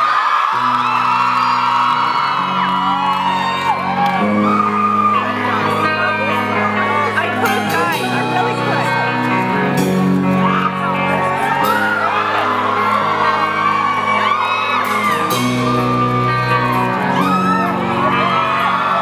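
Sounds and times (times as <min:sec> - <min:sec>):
audience whooping and screaming: 0:00.0 - 0:09.6, 0:10.2 - 0:19.0
live band sustained chords: 0:00.4 - 0:19.0.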